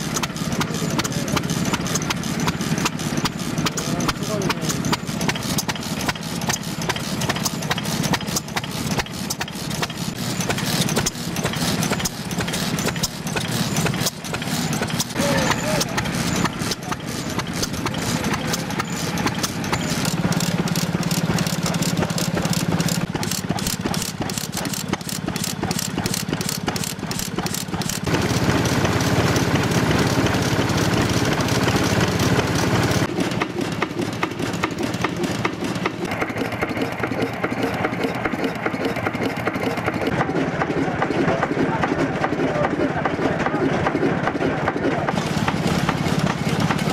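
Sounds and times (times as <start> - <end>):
stationary engine running: 0.0 - 46.9
valve-gear clatter: 0.0 - 46.9.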